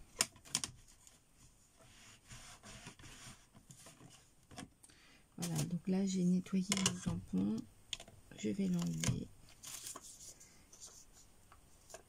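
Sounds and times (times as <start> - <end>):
faint rubbing of stamp: 1.4 - 4.3.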